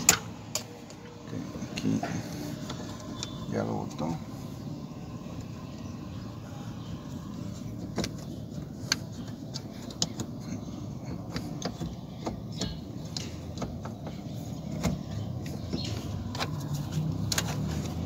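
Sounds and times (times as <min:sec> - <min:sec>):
parts clicking and knocking: 0:00.0 - 0:03.4, 0:07.5 - 0:18.0
steady low hum: 0:00.0 - 0:18.0.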